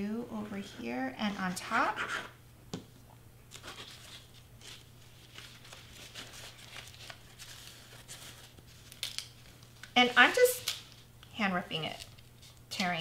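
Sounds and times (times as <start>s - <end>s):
low steady hum: 0.0s - 13.0s
paper rustling and scratching: 3.5s - 11.0s.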